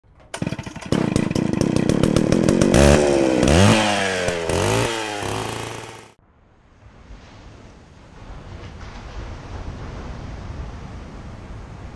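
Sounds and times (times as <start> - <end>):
small petrol engine revving: 0.2 - 6.2.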